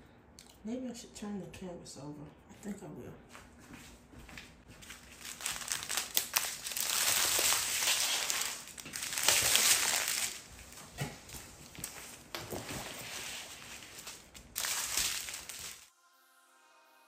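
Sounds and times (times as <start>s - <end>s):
plastic crinkling and rustling: 4.7s - 15.9s.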